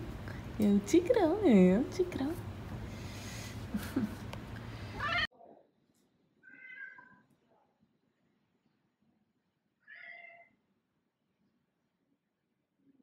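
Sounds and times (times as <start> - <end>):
cat meowing: 6.4 - 7.2, 9.8 - 10.6.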